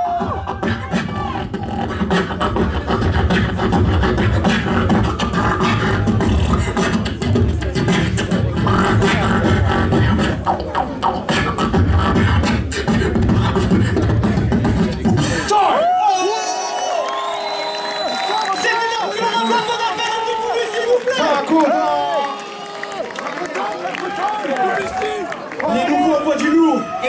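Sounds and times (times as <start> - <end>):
beatboxing through a microphone: 0.0 - 15.7.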